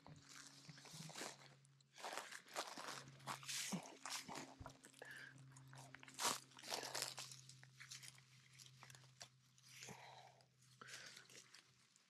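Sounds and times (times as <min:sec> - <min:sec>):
dry pine needles crunching: 0:00.2 - 0:09.8.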